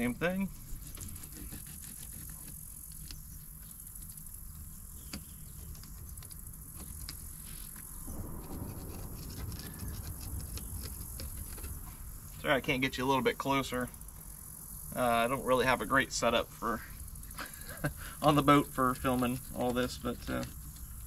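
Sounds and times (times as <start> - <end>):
insects chirring: 0.0 - 21.0.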